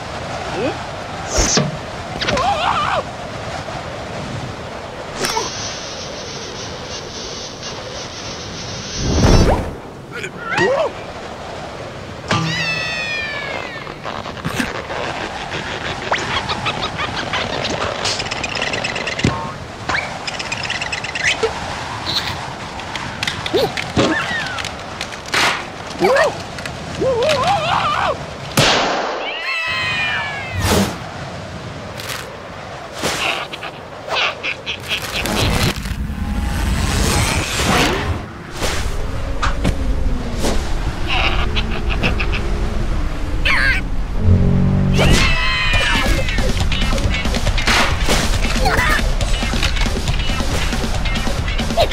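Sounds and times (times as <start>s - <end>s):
wind-like hiss with high whistle: 3.0s - 9.8s
cartoon character warbling vocalisation: 44.9s - 46.4s.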